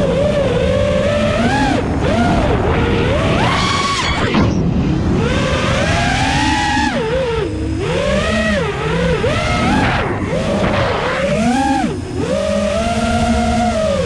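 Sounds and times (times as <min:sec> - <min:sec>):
drone motors whining: 0:00.0 - 0:14.0.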